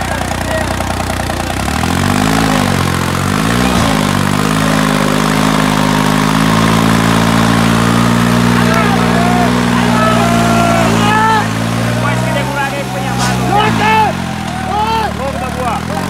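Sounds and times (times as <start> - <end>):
tractor diesel engine revving: 0.0 - 16.0.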